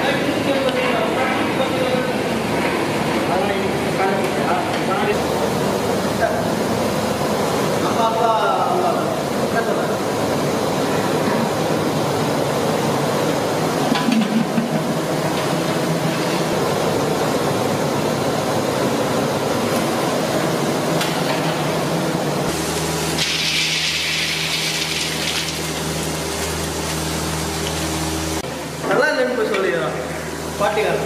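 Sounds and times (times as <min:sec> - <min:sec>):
hot oil sizzling: 0:22.5 - 0:28.4
nuts frying hiss: 0:22.6 - 0:26.6.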